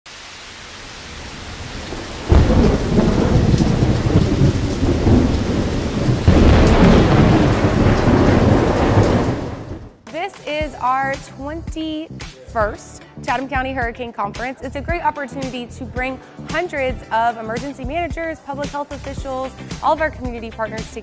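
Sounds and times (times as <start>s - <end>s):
steady rain: 0.1s - 10.0s
thunder rolling: 1.2s - 10.0s.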